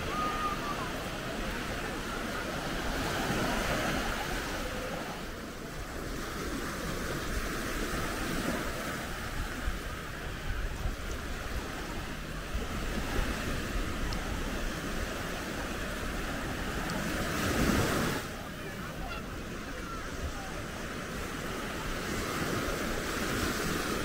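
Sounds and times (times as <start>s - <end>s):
wind buffeting microphone: 0.0s - 18.2s
surf washing onto beach: 0.0s - 24.0s.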